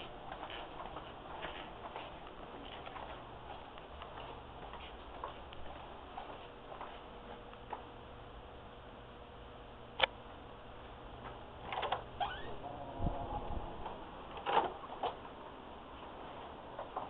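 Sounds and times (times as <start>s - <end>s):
door squeak: 11.7s - 12.6s.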